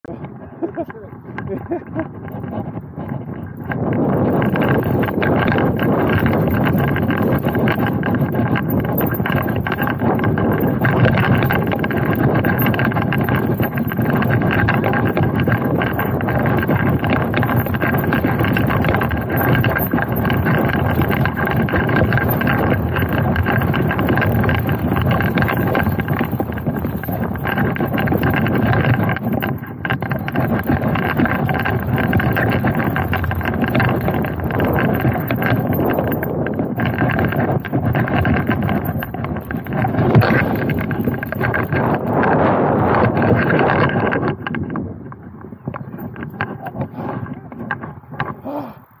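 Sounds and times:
wind noise on microphone: 0:00.0 - 0:49.0
bike rattling over bumps: 0:00.1 - 0:49.0
bike tyres rolling on dirt: 0:01.2 - 0:48.4.

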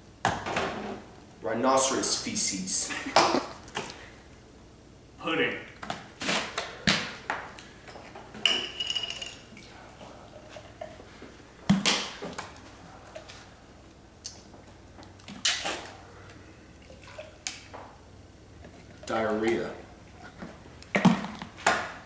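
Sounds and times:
liquid pouring into glasses: 0:16.8 - 0:17.5.

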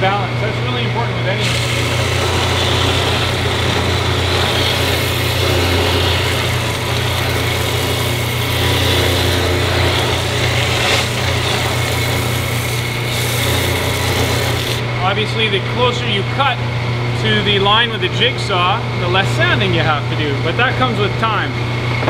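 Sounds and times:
sander motor hum: 0:00.8 - 0:15.0.

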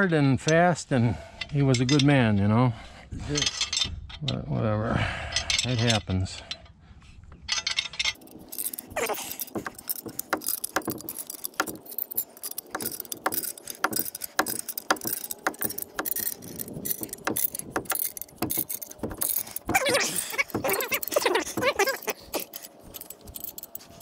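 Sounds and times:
metallic clinks and knocks: 0:07.5 - 0:24.0.

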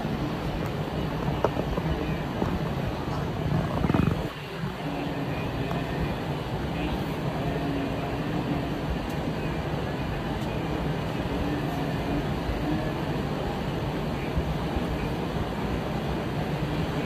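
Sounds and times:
rumble of hooves: 0:00.0 - 0:04.8.

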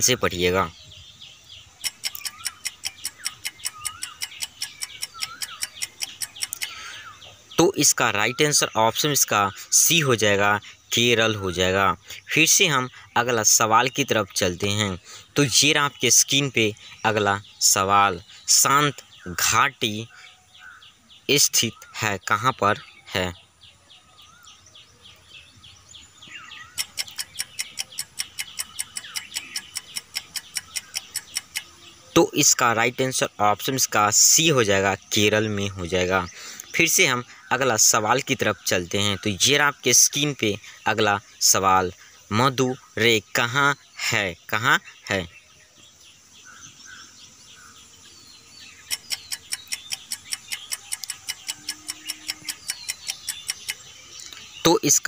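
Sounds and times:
faint bird-like chirps: 0:00.0 - 0:55.0
fast timer ticking: 0:01.9 - 0:06.7, 0:26.8 - 0:31.7, 0:48.9 - 0:53.8.

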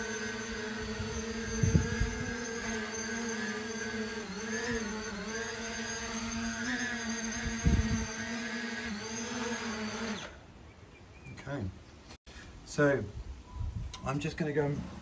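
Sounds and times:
drone propellers whining: 0:00.0 - 0:10.5.

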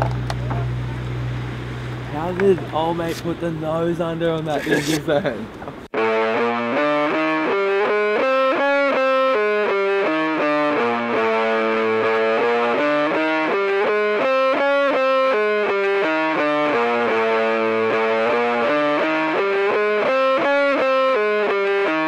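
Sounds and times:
distorted electric guitar melody: 0:05.9 - 0:22.0.

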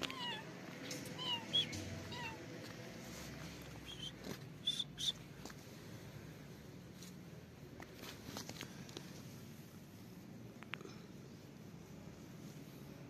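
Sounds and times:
cat meowing: 0:00.0 - 0:02.4
cat chirping: 0:00.0 - 0:02.5.

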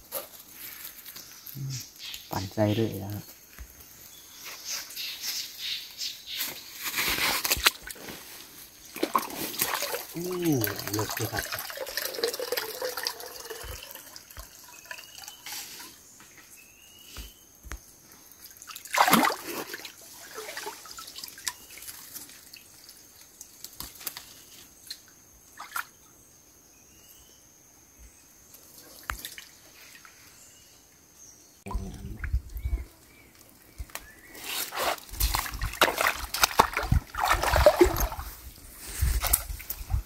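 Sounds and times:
water sloshing and dripping: 0:07.4 - 0:15.6, 0:18.4 - 0:24.2, 0:29.0 - 0:30.2, 0:35.2 - 0:38.6
water splashes: 0:08.8 - 0:15.2, 0:18.5 - 0:23.0, 0:35.2 - 0:38.6.

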